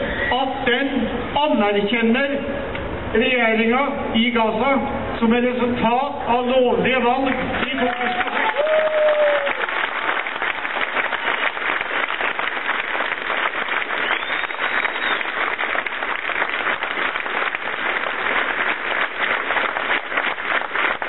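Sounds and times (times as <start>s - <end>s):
crowd applauding: 7.3s - 21.0s.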